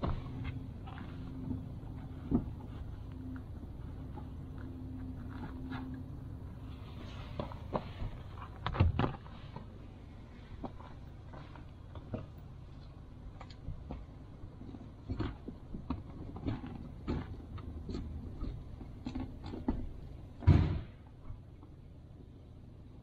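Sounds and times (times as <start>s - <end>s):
loud thump: 20.4s - 21.0s.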